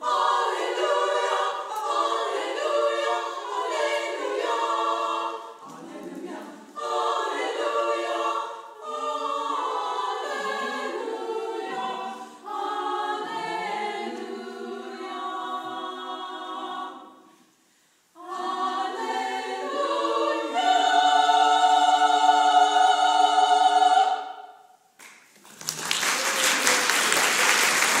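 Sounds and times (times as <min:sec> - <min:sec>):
choir singing a cappella: 0:00.0 - 0:24.8
audience applause: 0:25.4 - 0:28.0.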